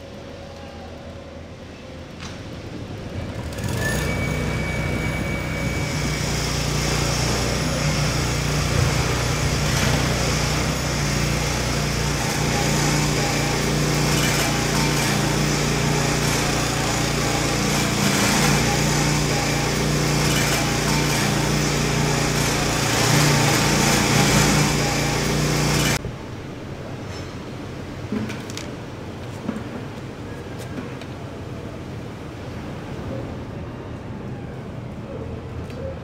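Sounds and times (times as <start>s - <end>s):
concrete saw engine running: 3.1s - 26.0s
saw blade cutting concrete: 3.7s - 26.0s.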